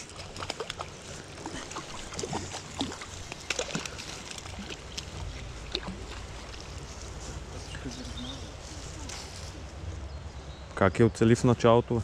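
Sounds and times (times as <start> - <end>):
water sloshing and splashing: 0.0 - 9.5.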